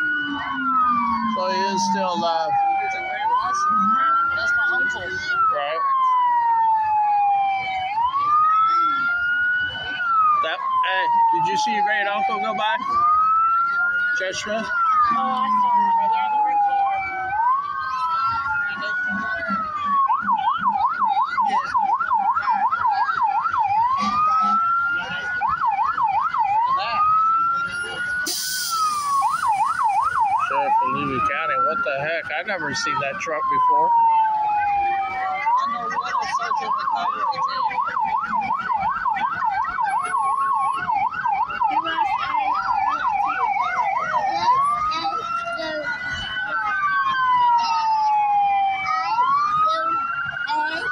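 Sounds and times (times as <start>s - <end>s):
police siren yelp and wail: 0.0s - 50.9s.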